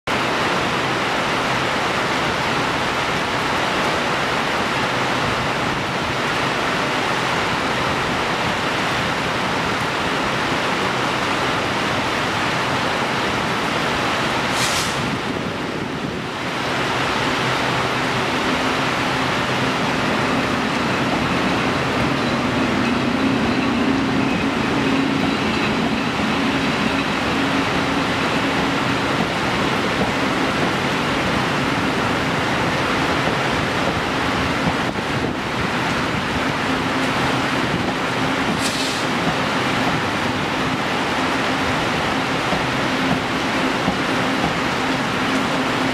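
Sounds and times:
heavy rain falling: 0:00.0 - 0:45.9
electric locomotive hum: 0:00.1 - 0:45.9
brief high hiss: 0:14.5 - 0:15.2, 0:38.6 - 0:39.1.

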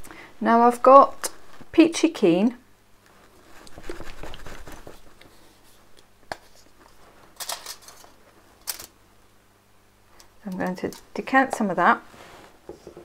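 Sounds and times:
plastic bottle rustling: 0:03.4 - 0:05.2.

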